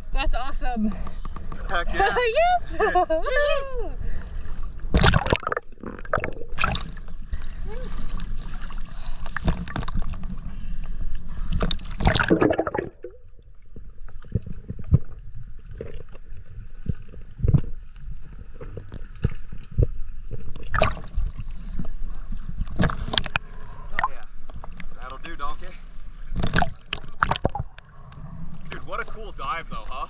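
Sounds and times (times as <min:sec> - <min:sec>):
underwater clicks and pops: 0:04.9 - 0:07.1, 0:16.8 - 0:21.2, 0:22.6 - 0:24.9, 0:26.3 - 0:27.9
water splash: 0:04.9 - 0:07.2, 0:11.6 - 0:13.3, 0:20.4 - 0:21.4, 0:26.3 - 0:27.8
seawater sloshing and splashing: 0:06.4 - 0:13.1.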